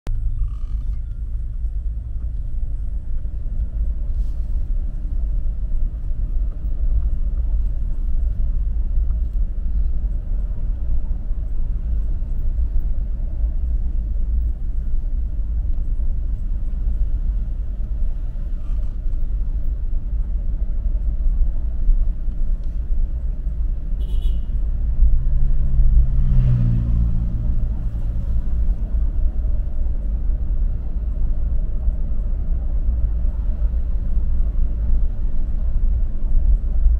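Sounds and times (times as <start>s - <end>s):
vehicle engine and road noise: 0.1s - 36.9s.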